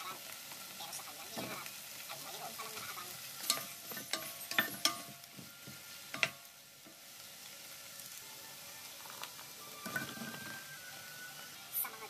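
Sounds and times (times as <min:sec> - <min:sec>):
vegetables sizzling in a pot: 0:00.0 - 0:12.0
utensil scraping and knocking pot: 0:03.4 - 0:06.4, 0:09.8 - 0:10.6.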